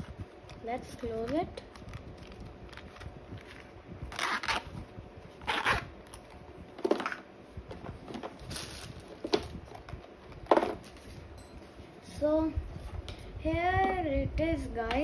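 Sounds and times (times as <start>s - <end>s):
zipper rasping closed: 4.1s - 4.7s, 5.4s - 5.9s.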